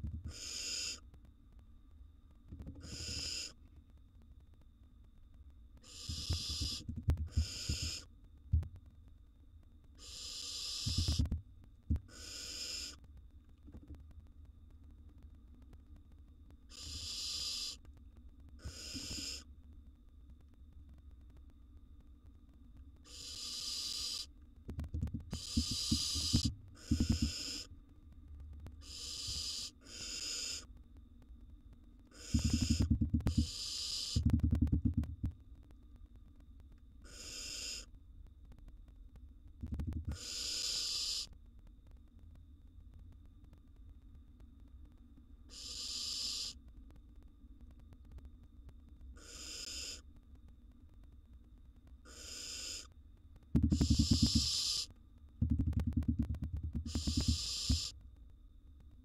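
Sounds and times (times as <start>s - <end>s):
owl nestlings hissing calls: 0.2s - 1.0s, 2.8s - 3.6s, 5.8s - 8.1s, 10.0s - 11.3s, 12.0s - 13.0s, 16.7s - 17.8s, 18.6s - 19.5s, 23.0s - 24.3s, 25.2s - 27.7s, 28.8s - 30.7s, 32.1s - 34.4s, 37.0s - 37.9s, 40.1s - 41.4s, 45.5s - 46.6s, 49.2s - 50.0s, 52.0s - 52.9s, 53.6s - 56.2s, 56.8s - 58.0s
rapid low pulsing: 53.6s - 54.5s, 55.4s - 57.8s.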